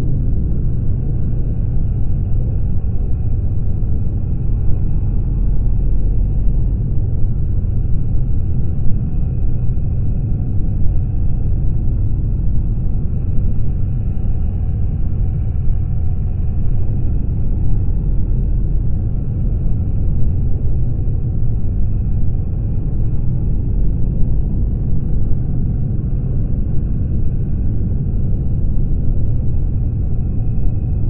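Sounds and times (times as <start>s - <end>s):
motorcycle engine low rumble: 0.0s - 31.0s
wind noise on microphone: 0.0s - 31.0s.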